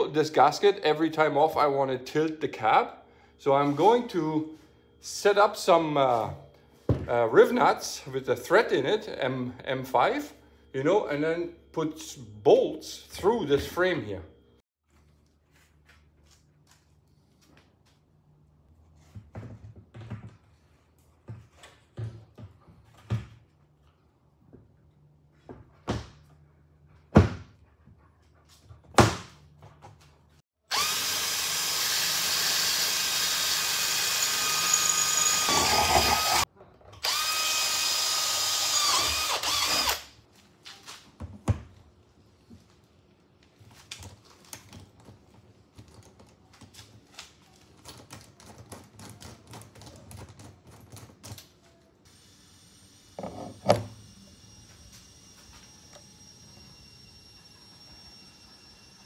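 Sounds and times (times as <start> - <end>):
cordless drill boring into metal: 30.7 - 40.1.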